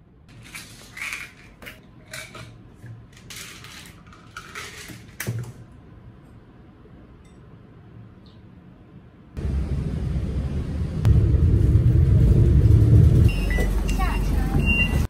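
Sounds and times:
clattering handling sounds: 0.3 - 5.6.

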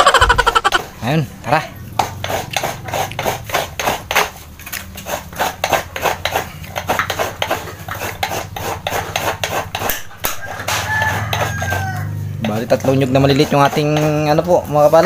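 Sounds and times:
coconut grater scraping: 2.0 - 15.0.

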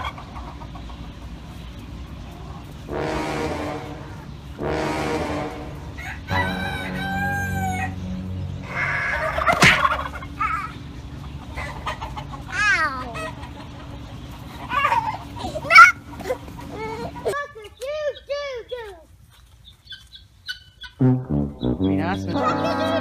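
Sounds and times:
rooster crowing: 5.9 - 9.5.

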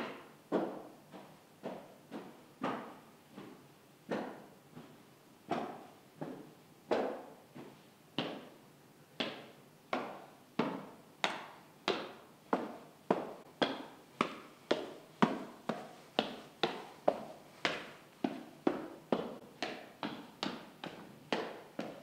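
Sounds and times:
echoing footsteps: 11.9 - 22.0.

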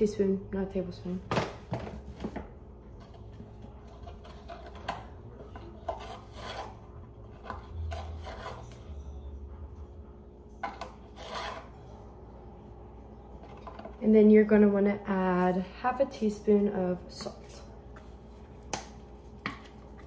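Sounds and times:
plastic spoons scraping and clinking: 3.0 - 9.1, 10.6 - 11.8.

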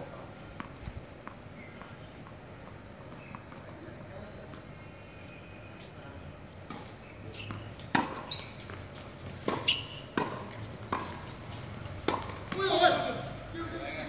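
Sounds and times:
tennis ball bouncing on hard court: 0.6 - 2.0, 6.7 - 12.8
tennis ball hit by rackets: 6.7 - 11.3, 12.0 - 12.8.

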